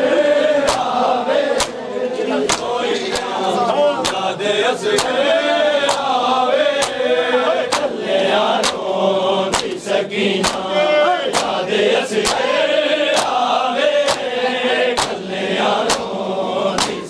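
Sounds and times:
men chanting together: 0.0s - 17.0s
hand slapping chest: 0.6s - 1.8s, 2.5s - 3.4s, 4.0s - 4.3s, 4.9s - 5.2s, 5.8s - 7.1s, 7.7s - 8.0s, 8.6s - 8.9s, 9.5s - 9.8s, 10.4s - 10.7s, 11.3s - 12.5s, 13.1s - 13.4s, 14.0s - 14.3s, 15.0s - 15.2s, 15.8s - 16.1s, 16.8s - 17.0s.

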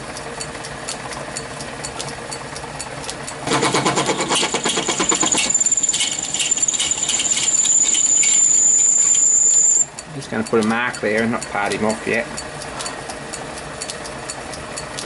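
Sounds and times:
metal lathe running: 3.4s - 9.9s
high-pitched cutting squeal: 3.5s - 9.9s
cutting tool rattling on brass: 3.6s - 8.5s.

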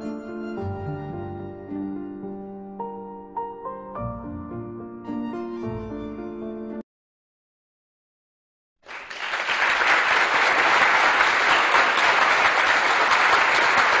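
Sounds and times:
crowd applauding: 8.8s - 14.0s.

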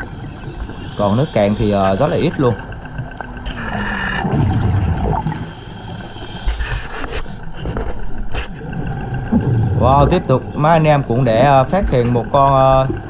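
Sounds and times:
thin high whine: 0.0s - 9.4s
underwater low rumble: 0.0s - 13.0s.

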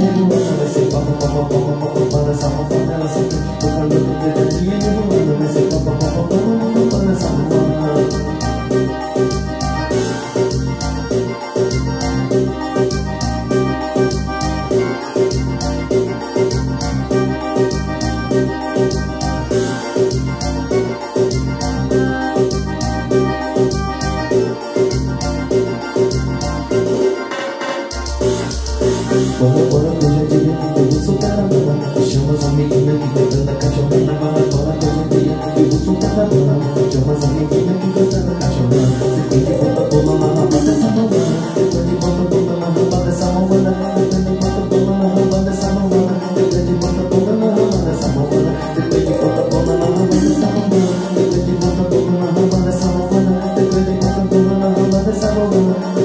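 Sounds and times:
keyboard melody: 0.0s - 56.0s
fast drum beat: 27.9s - 56.0s.

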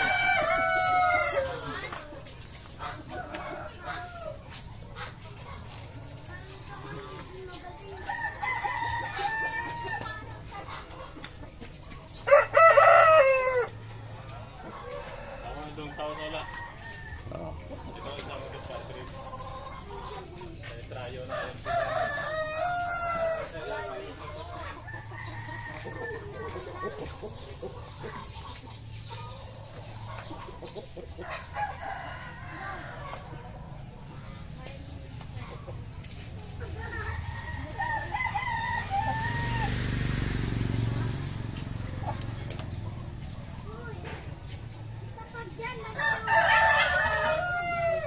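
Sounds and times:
rooster crowing: 0.0s - 1.7s, 12.3s - 13.8s, 21.3s - 23.6s, 37.0s - 39.9s, 46.0s - 48.0s
drawn-out chicken call: 0.0s - 1.9s, 12.2s - 18.0s, 36.8s - 42.8s, 45.9s - 48.0s
chickens clucking: 0.0s - 48.0s.

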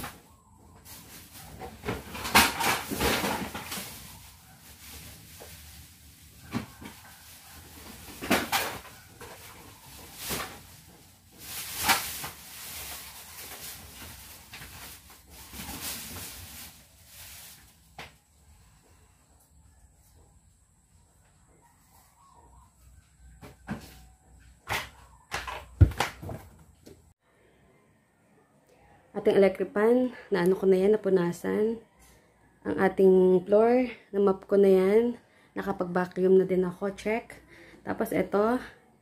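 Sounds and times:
household things knocking and clattering: 1.5s - 4.1s, 7.9s - 12.4s, 24.6s - 27.1s.

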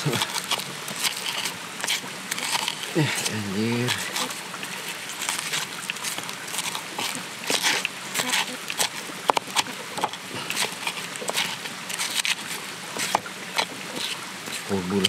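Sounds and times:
pestle crushing and grinding: 0.0s - 15.0s.

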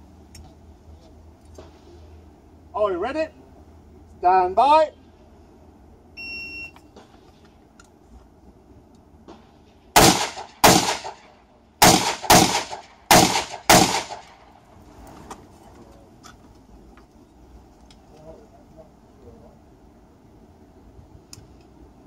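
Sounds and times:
rifle shots: 10.0s - 14.5s.

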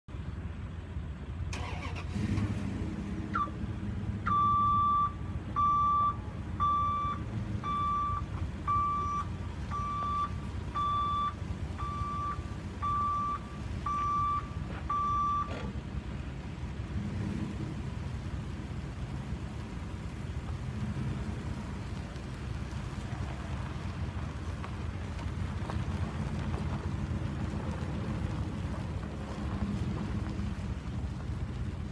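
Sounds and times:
truck engine running: 0.1s - 31.9s
truck backup alarm beeping: 1.5s - 2.0s, 3.3s - 3.6s, 4.2s - 15.7s.

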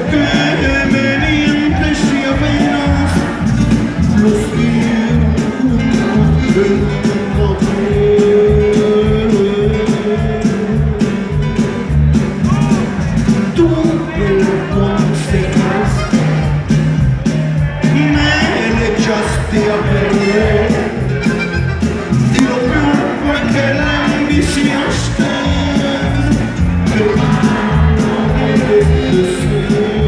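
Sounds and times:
man singing: 0.0s - 16.6s, 17.6s - 21.4s, 22.2s - 30.0s
button accordion: 0.0s - 30.0s
live band playing: 0.0s - 30.0s.

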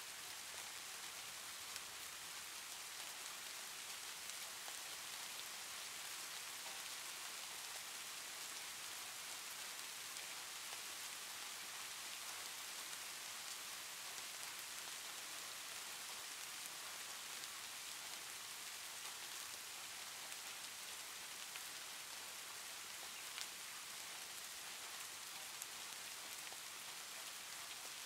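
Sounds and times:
faint steady hiss: 0.0s - 28.0s
faint ticks: 23.0s - 23.5s.

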